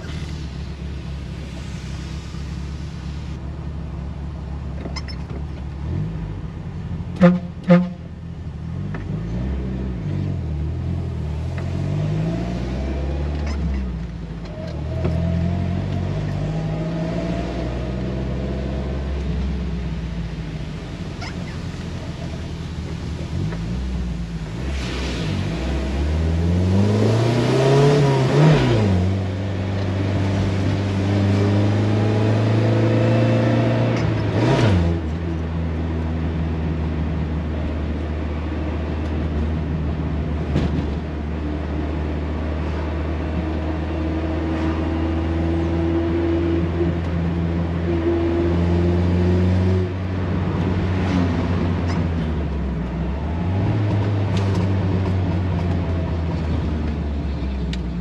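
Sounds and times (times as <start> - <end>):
tyre hiss on wet road: 0.0 - 3.4, 21.4 - 26.5
car engine revving through gears: 8.9 - 19.7, 23.2 - 35.2.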